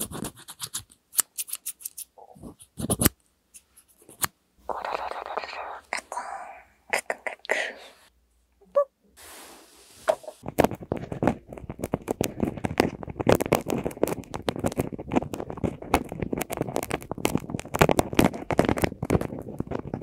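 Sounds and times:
sticks scraping on microphones: 0:10.0 - 0:20.0.

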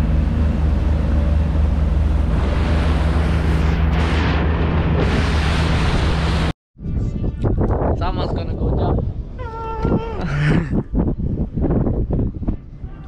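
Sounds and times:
outboard motor hum: 0:00.0 - 0:06.5
rushing wind and water: 0:00.0 - 0:06.5.

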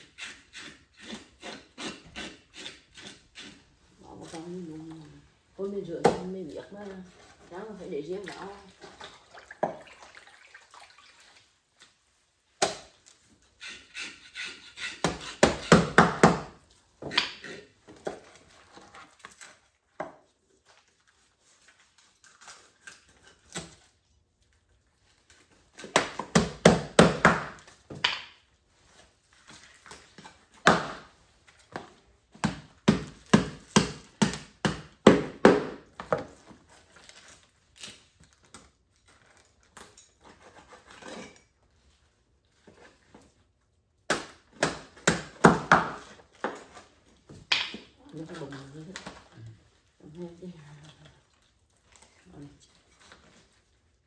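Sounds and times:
knife chopping on cutting board: 0:14.0 - 0:17.6.

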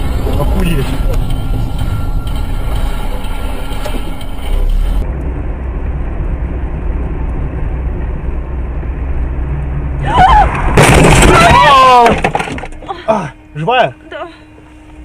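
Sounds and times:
car engine and road noise: 0:00.0 - 0:15.0.

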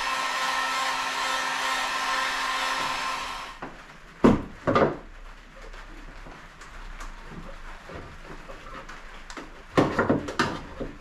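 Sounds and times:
heat gun blowing: 0:00.0 - 0:03.6.

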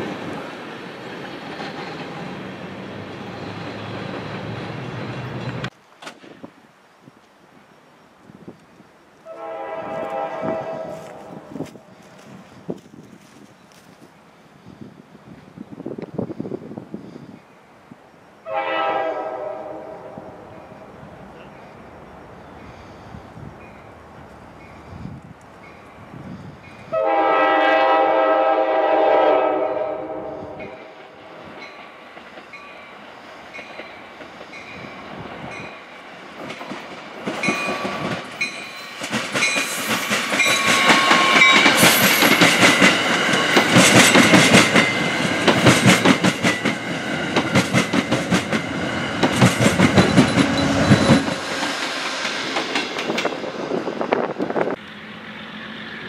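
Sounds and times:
diesel locomotive engine drone: 0:00.0 - 0:05.8, 0:09.2 - 0:56.0
train horn chord: 0:09.2 - 0:12.0, 0:18.4 - 0:20.8, 0:26.9 - 0:31.0
train wheels clacking over rail joints: 0:35.6 - 0:54.8.

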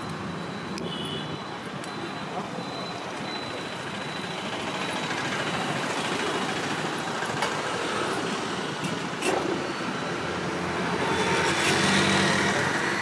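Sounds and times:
road traffic passing: 0:00.0 - 0:13.0.

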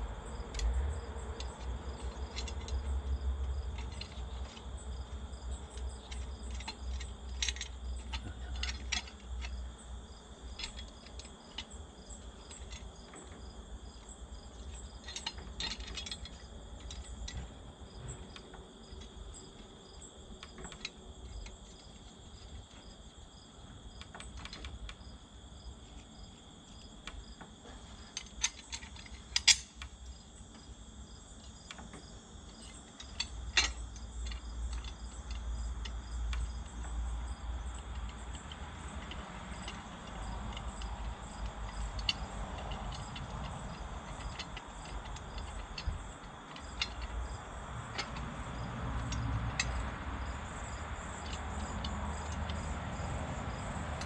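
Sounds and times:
crickets chirping: 0:00.0 - 0:54.0.

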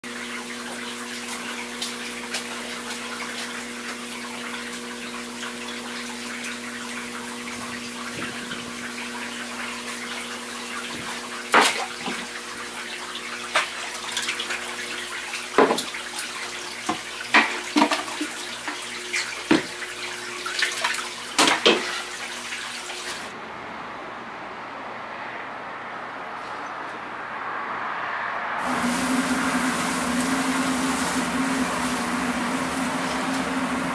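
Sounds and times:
net splashing and knocking: 0:10.9 - 0:12.3
steady hum: 0:28.6 - 0:33.9
water pouring into tank: 0:28.6 - 0:33.9.

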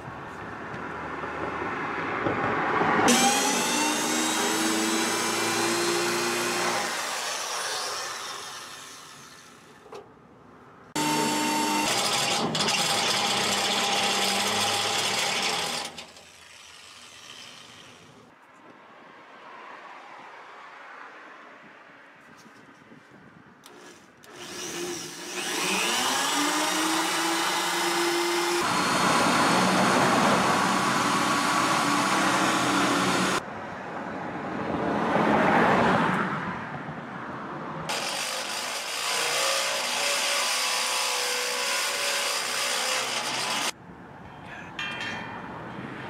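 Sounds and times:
electric drill drilling through steel: 0:03.1 - 0:09.7, 0:11.0 - 0:18.2, 0:23.7 - 0:33.4, 0:37.9 - 0:43.8.

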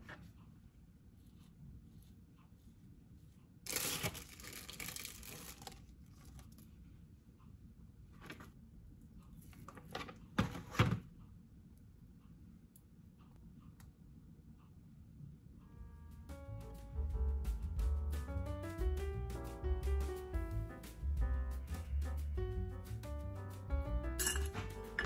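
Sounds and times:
packaging being torn: 0:03.7 - 0:05.8.

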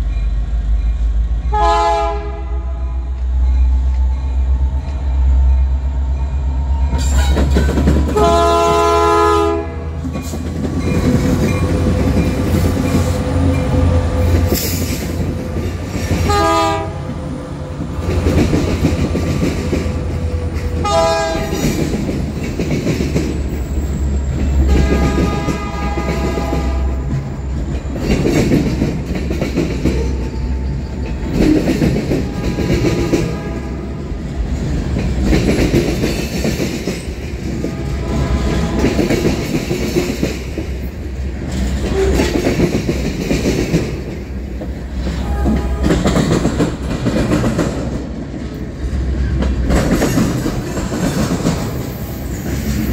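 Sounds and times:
diesel locomotive engines rumbling: 0:00.0 - 0:52.9
train air horn blasts: 0:01.5 - 0:03.2, 0:08.1 - 0:10.0, 0:16.2 - 0:17.1, 0:20.8 - 0:21.7, 0:24.6 - 0:27.1, 0:32.2 - 0:34.0, 0:37.5 - 0:39.1, 0:45.1 - 0:46.2
train wheels clacking over rail joints: 0:06.9 - 0:52.9.

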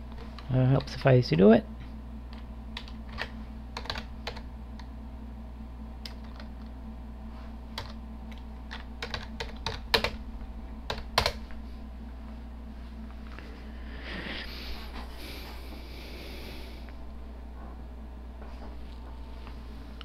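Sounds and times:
low steady hum: 0:00.0 - 0:20.0
computer keyboard keystrokes: 0:02.3 - 0:04.9, 0:06.0 - 0:06.7, 0:07.7 - 0:10.2, 0:10.9 - 0:11.4.

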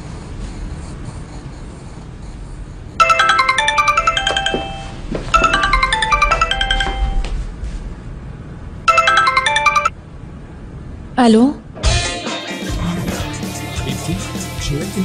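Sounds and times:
phone ringtone melody: 0:03.0 - 0:07.3, 0:08.9 - 0:10.0.

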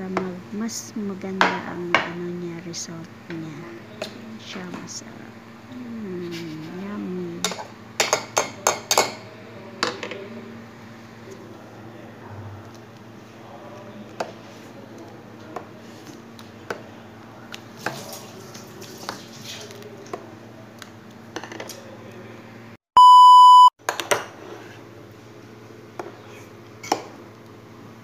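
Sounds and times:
loud electronic beep: 0:23.0 - 0:23.7.

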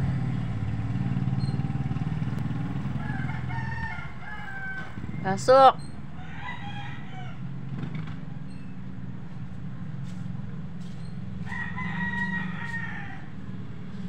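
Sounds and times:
rooster crowing: 0:02.9 - 0:05.5, 0:06.1 - 0:07.6, 0:11.4 - 0:13.5.

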